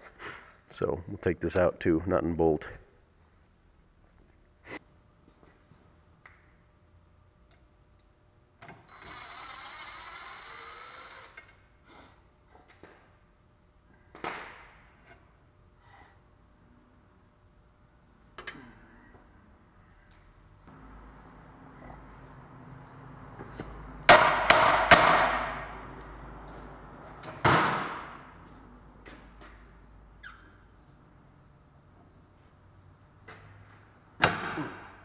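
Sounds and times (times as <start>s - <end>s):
impact wrench spinning: 8.9s - 11.6s.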